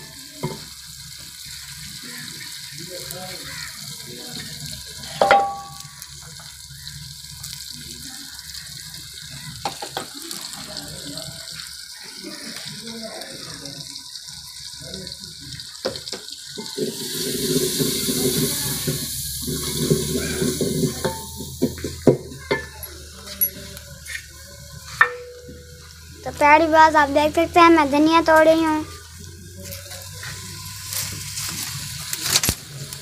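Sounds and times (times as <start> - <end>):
steel cookware clinking: 5.1 - 5.9, 16.6 - 24.2, 25.0 - 26.0
steel utensil striking and ringing: 5.2 - 5.9, 25.0 - 25.8.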